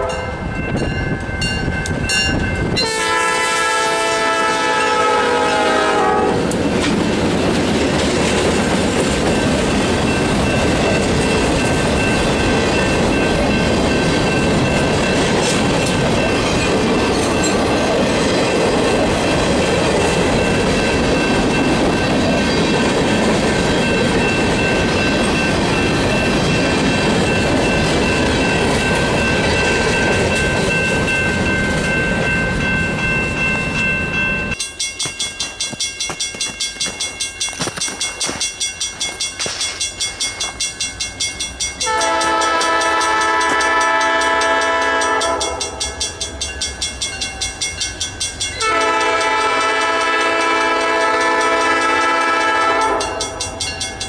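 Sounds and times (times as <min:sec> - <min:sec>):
locomotive horn: 0:00.0 - 0:00.4, 0:02.8 - 0:06.6, 0:41.8 - 0:45.7, 0:48.6 - 0:53.2
crossing bell ringing: 0:00.0 - 0:54.0
train wheels rumbling and squealing: 0:04.7 - 0:54.0.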